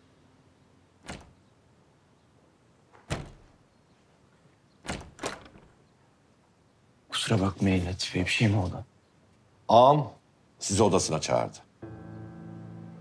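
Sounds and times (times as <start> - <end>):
door handle and latch clunks: 1.0 - 1.5, 3.0 - 3.6, 4.8 - 5.8
thuds: 3.0 - 3.6.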